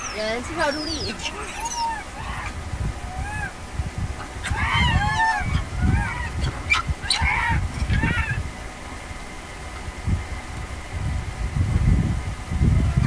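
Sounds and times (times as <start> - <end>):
macaques squeaking and cooing: 0.0 - 8.4
low rumbling: 0.0 - 13.0.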